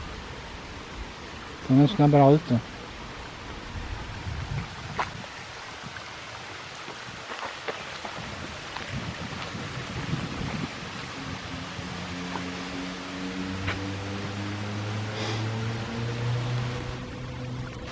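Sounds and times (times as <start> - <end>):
stream running over stones: 0.0 - 17.9.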